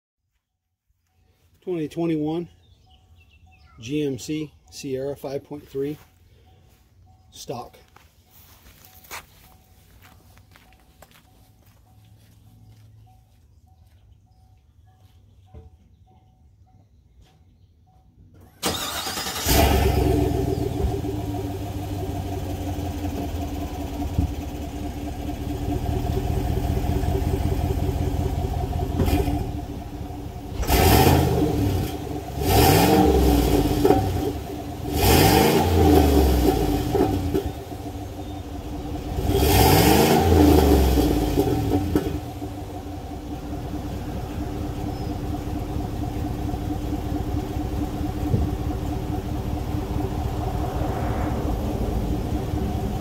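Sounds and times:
truck engine idling: 18.2 - 32.4, 37.2 - 39.3, 41.1 - 53.0
engine revving: 18.6 - 53.0.

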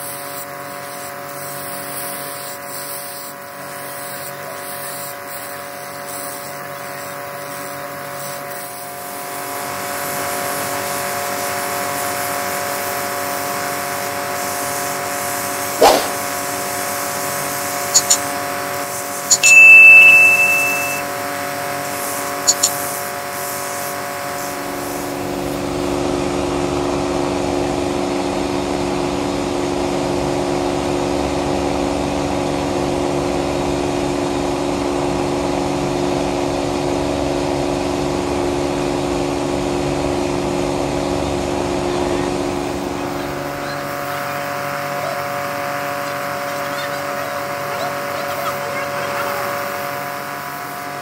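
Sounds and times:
sharp clicks: 18.0 - 18.2, 22.5 - 22.8.

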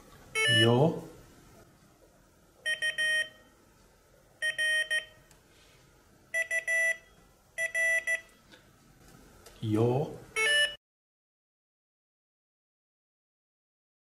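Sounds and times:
morse code beeps: 0.4 - 0.8, 2.6 - 3.4, 4.4 - 5.2, 6.3 - 8.3, 10.4 - 10.8.

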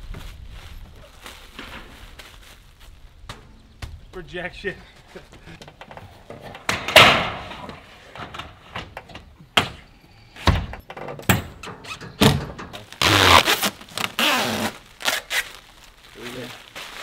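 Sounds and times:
plastic film crinkling: 0.0 - 3.3, 12.8 - 17.0
metal roof panel banging: 6.4 - 9.8.

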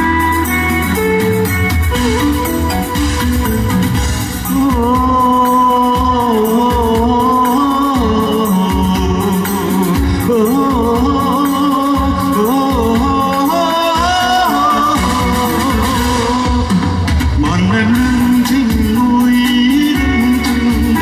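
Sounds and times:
backing track with steady beat: 0.0 - 21.0
man singing into a microphone: 4.4 - 21.0.

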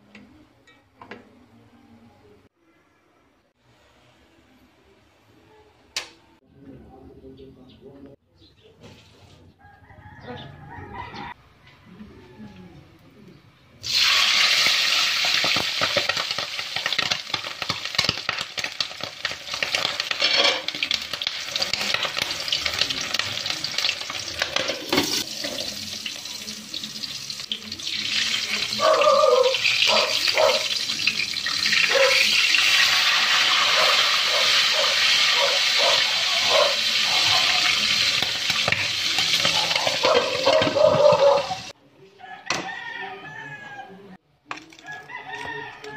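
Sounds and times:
meat sizzling in hot oil: 13.8 - 28.8, 29.4 - 41.7.

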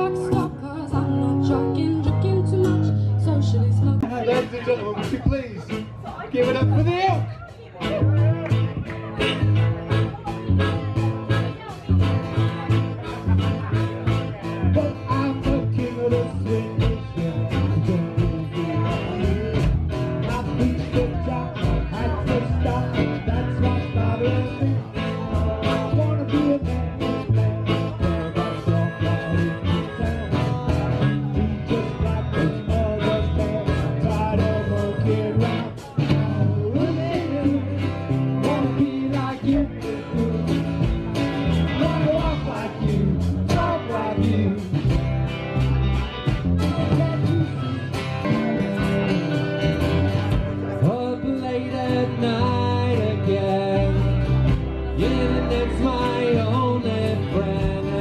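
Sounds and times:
woman singing: 0.0 - 4.4
live blues band playing: 0.0 - 58.0
harmonica: 9.3 - 17.8, 25.4 - 35.9, 45.6 - 50.8.

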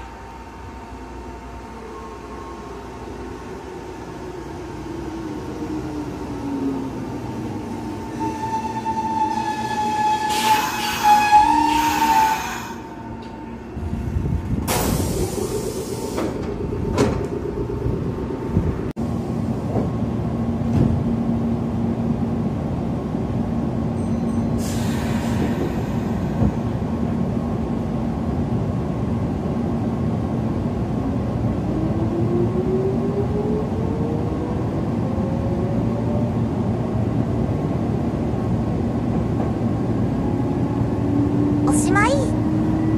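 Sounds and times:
train steady hum: 0.0 - 42.9
train brakes squealing: 8.2 - 13.0, 24.0 - 26.4.

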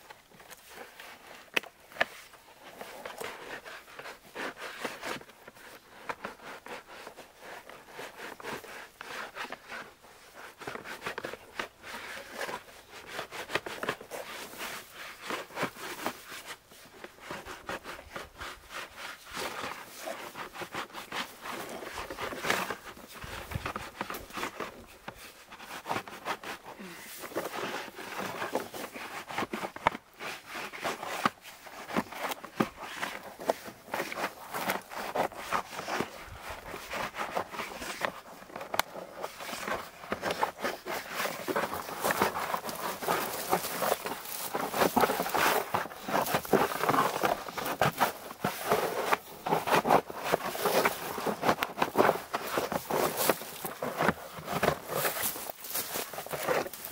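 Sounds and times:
bark crackling and tearing: 36.7 - 56.9.

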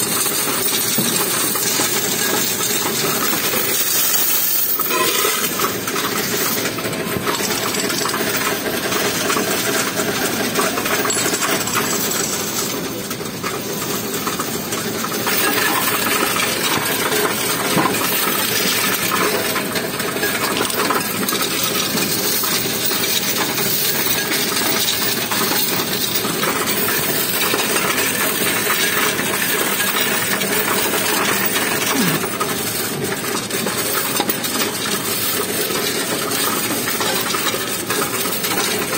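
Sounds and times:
coin machine humming: 0.0 - 38.9
coins clattering: 0.0 - 38.9.

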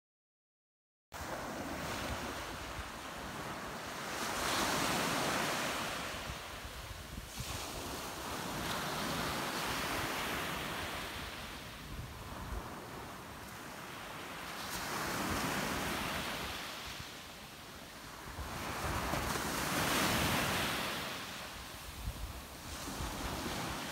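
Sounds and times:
small surf breaking on beach: 1.2 - 17.4, 18.0 - 23.9.

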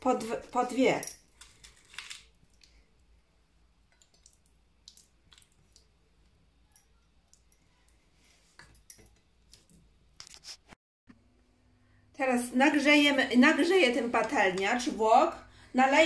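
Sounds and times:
soft squishes of raw meat: 1.2 - 10.7.

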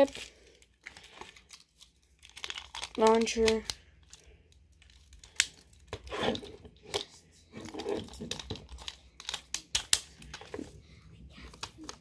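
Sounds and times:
plastic rubbing: 0.8 - 12.0
plastic clicks and rattles: 2.2 - 4.2, 6.9 - 10.7.

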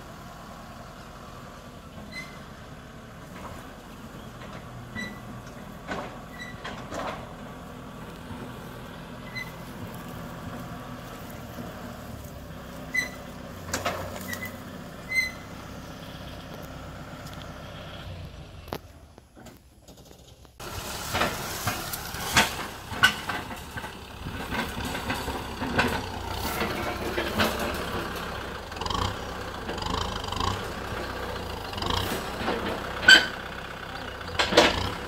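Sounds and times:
tractor diesel engine running: 0.0 - 35.0
short high squeaks: 2.0 - 2.5, 4.9 - 5.4, 6.3 - 6.8, 9.2 - 9.8, 12.8 - 13.4, 14.0 - 15.6
trailer clanks: 3.3 - 10.6, 19.4 - 35.0.

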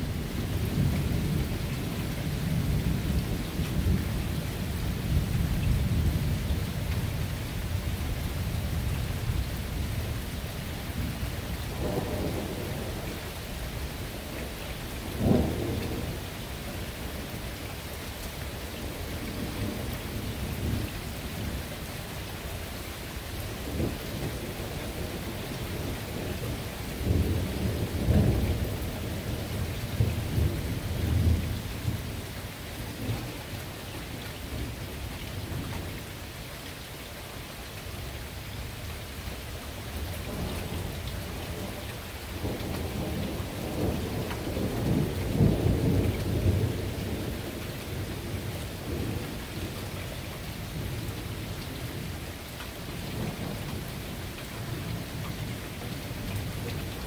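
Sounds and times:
steady rain falling: 0.0 - 57.0
low thunder rumbling: 10.9 - 17.4, 23.3 - 33.4, 39.9 - 52.3.

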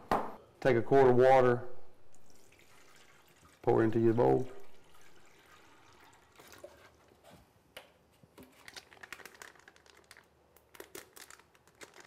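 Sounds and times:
water poured into urinal: 2.1 - 7.0
plastic packet crinkling: 8.4 - 12.0.

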